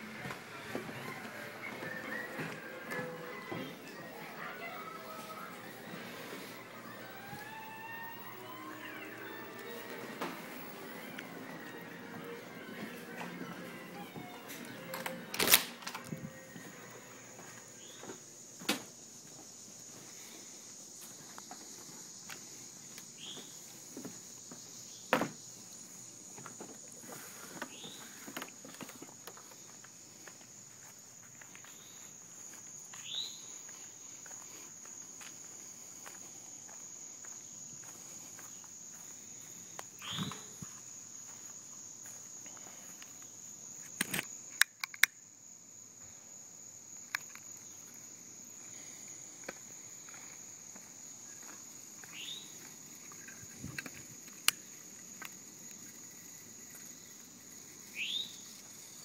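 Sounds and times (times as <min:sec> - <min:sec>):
footsteps: 0:00.0 - 0:25.4, 0:26.3 - 0:43.0
insects chorus: 0:00.0 - 0:59.0
falling squeaks: 0:00.9 - 0:17.1.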